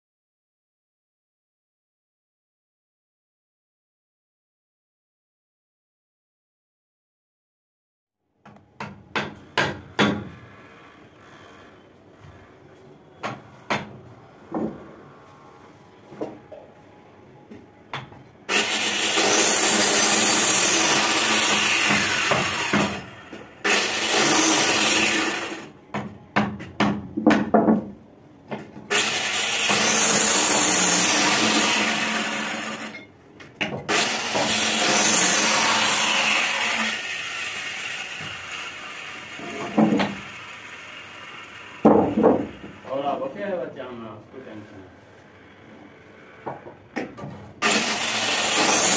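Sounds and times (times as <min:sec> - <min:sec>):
knocks of wood being handled: 0:13.2 - 0:14.9, 0:25.9 - 0:28.9, 0:41.8 - 0:42.8
electric planer cutting wood: 0:18.5 - 0:25.7, 0:28.9 - 0:32.9, 0:33.9 - 0:42.9, 0:47.6 - 0:48.9.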